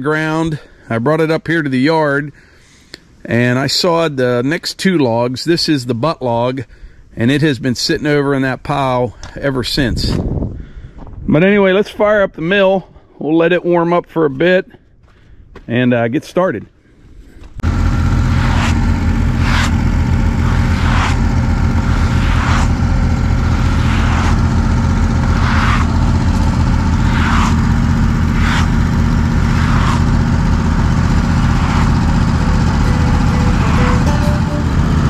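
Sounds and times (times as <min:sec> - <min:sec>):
sawmill engine starting and running: 0:17.5 - 0:35.0.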